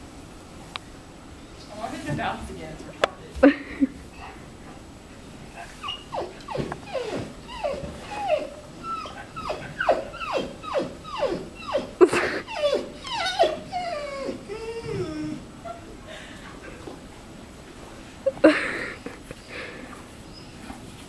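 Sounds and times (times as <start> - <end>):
dog whining: 5.5 - 16.0.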